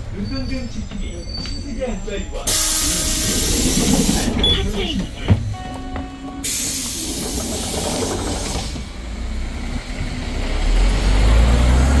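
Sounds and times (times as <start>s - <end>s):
compressed air hiss: 2.5s - 4.4s, 6.4s - 7.7s
bus engine revving: 6.4s - 12.0s.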